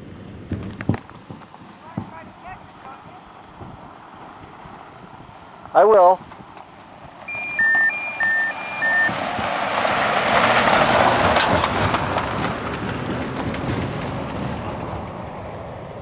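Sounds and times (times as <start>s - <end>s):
vehicle passing on road: 0.0s - 16.0s
two-note electronic beeps: 7.3s - 9.2s.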